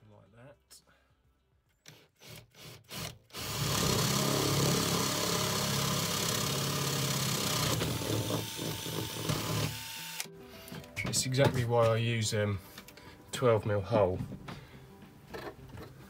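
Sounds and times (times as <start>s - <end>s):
electric drill boring: 1.9s - 10.3s.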